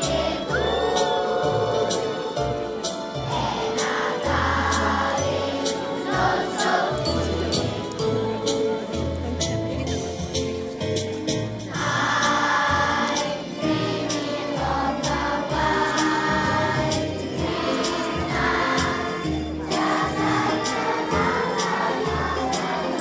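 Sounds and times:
children's choir singing: 0.0 - 9.0, 11.7 - 23.0
music with bass and percussion: 7.0 - 13.0.

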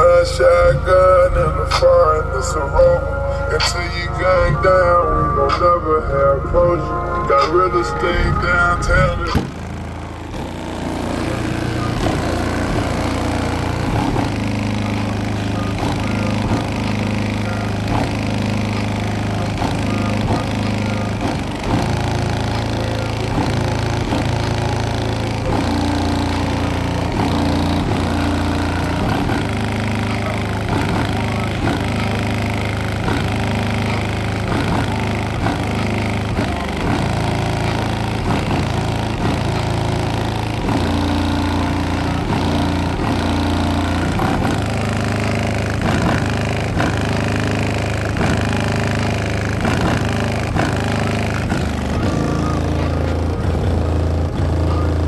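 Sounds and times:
deep bass rap music from car: 0.0 - 55.0.

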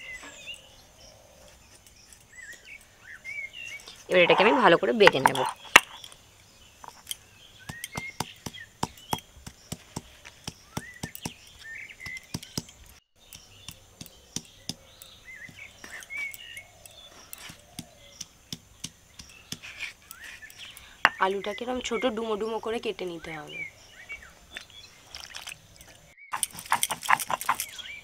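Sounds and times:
birds chirping: 0.0 - 28.0
stone pestle knocking on stone: 7.7 - 11.4, 13.4 - 15.6, 17.5 - 19.6.

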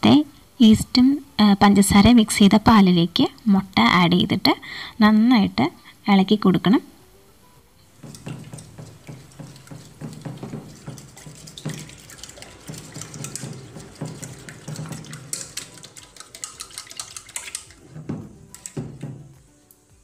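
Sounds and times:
fork tapping metal pot: 7.8 - 19.4
liquid sloshing: 7.8 - 19.4.

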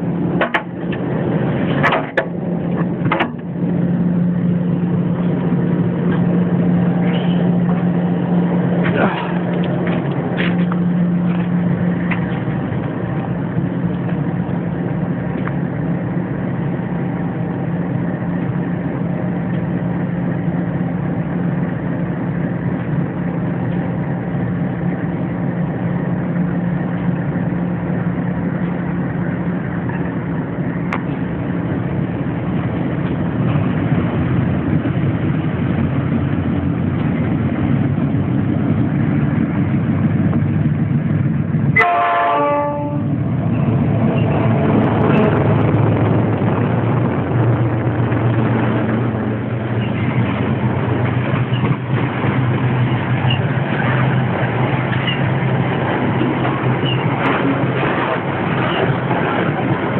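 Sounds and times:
diesel locomotive engine hum: 0.0 - 59.9
train horn: 41.8 - 43.2.

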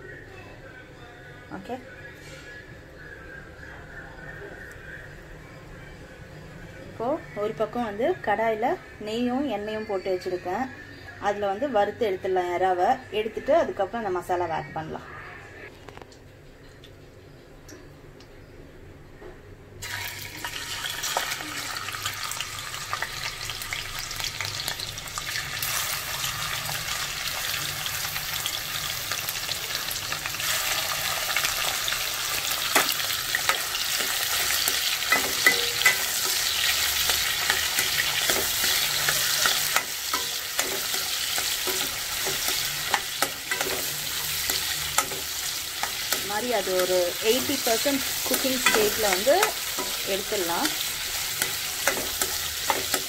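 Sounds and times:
prawns sizzling in oil: 19.8 - 53.0
spatula tapping pan: 32.6 - 53.0.

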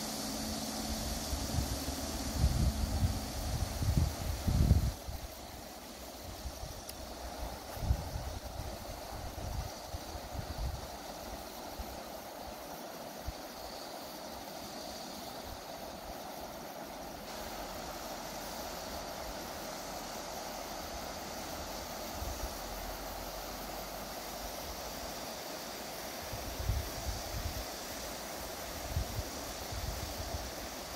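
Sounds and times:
rushing outdoor ambience: 0.0 - 30.9
wind buffeting microphone: 1.4 - 5.3.

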